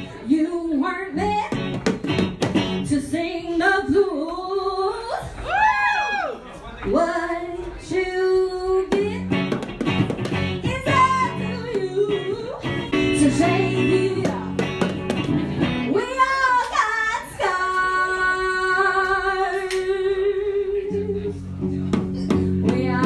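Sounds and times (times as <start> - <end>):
guitar: 0.0 - 5.8, 6.9 - 23.0
woman singing: 0.2 - 1.7, 2.8 - 5.4, 6.9 - 9.4, 10.6 - 14.8, 15.9 - 21.4, 22.3 - 23.0
hand drum: 8.9 - 12.0, 14.1 - 15.4.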